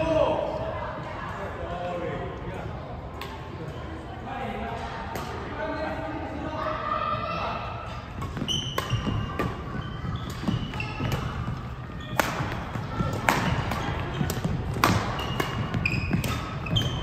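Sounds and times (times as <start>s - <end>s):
shoes squeaking on court floor: 7.9s - 17.0s
rackets striking shuttlecock: 8.1s - 17.0s.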